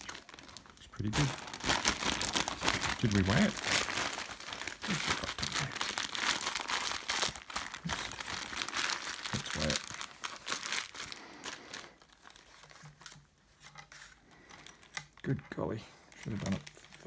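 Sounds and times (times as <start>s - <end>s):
stuff sack crinkling: 0.0s - 13.2s, 16.1s - 17.0s.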